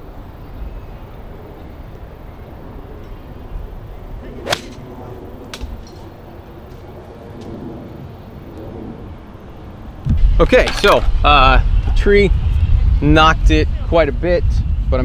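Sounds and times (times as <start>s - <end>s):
golf club striking ball: 4.4s - 6.1s.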